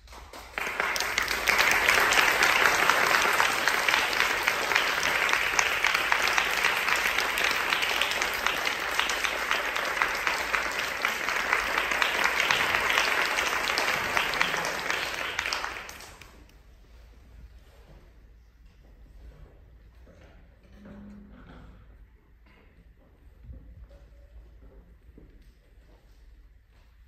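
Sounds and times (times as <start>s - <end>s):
audience applauding: 0.0s - 16.5s.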